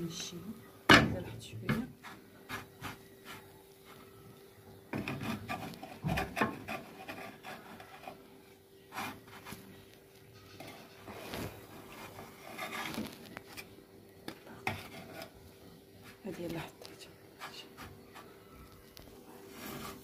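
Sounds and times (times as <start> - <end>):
wooden spatula scraping frying pan: 5.0 - 8.2, 10.4 - 13.4, 14.6 - 15.4, 19.5 - 20.0.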